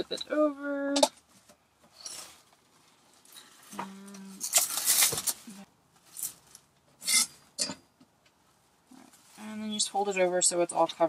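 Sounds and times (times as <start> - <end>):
plastic wrap crinkling: 2.1 - 6.8.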